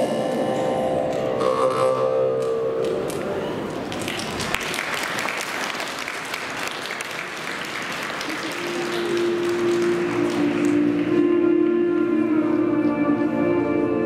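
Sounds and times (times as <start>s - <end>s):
music with long held note: 0.0s - 3.1s, 8.4s - 14.0s
audience applauding: 3.7s - 11.2s.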